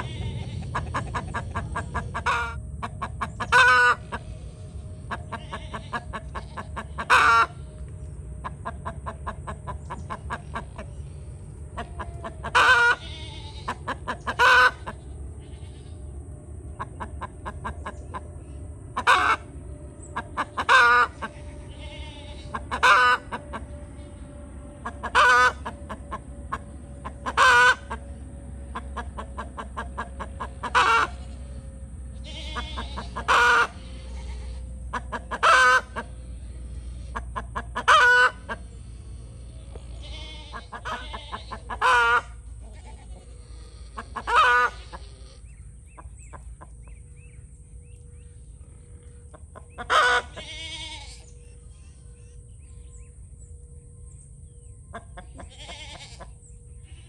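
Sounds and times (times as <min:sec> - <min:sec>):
chicken loud calls: 0:00.0 - 0:04.3, 0:05.1 - 0:07.7, 0:11.7 - 0:16.0, 0:19.0 - 0:19.5, 0:20.2 - 0:31.7, 0:32.3 - 0:45.4, 0:49.3 - 0:51.2
hens soft clucking: 0:00.0 - 0:04.3, 0:11.6 - 0:15.0, 0:19.0 - 0:19.6, 0:20.2 - 0:21.5, 0:24.8 - 0:31.7, 0:32.5 - 0:45.4, 0:49.3 - 0:51.2.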